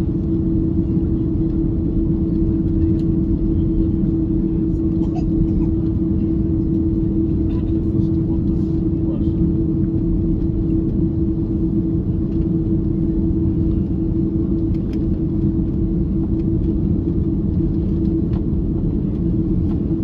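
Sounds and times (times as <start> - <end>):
airliner cabin rumble while taxiing: 0.0 - 20.0
constant hum: 0.0 - 20.0.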